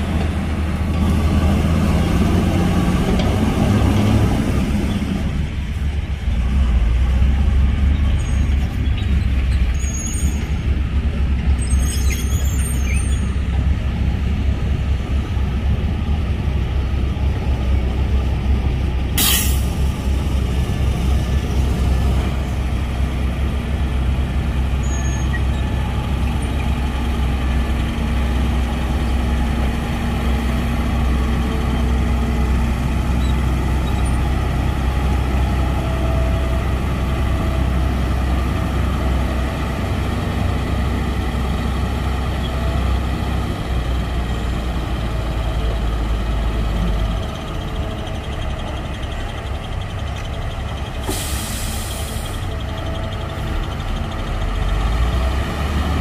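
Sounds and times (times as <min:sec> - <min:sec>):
heavy diesel engine droning: 0:00.0 - 0:56.0
compressed air hiss: 0:19.2 - 0:19.7, 0:51.0 - 0:52.4.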